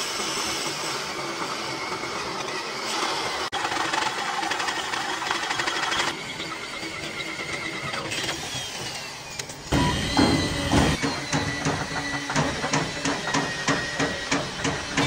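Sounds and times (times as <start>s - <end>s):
workshop machinery noise: 0.0s - 15.0s
hammer strikes on metal: 9.7s - 15.0s.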